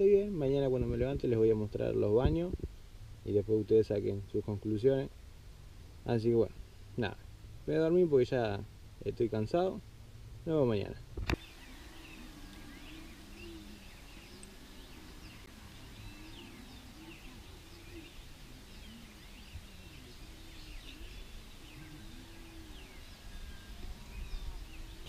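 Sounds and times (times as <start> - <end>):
steady background hiss: 0.0 - 25.0
birds chirping: 3.2 - 25.0
low rising and falling bird calls: 11.3 - 25.0.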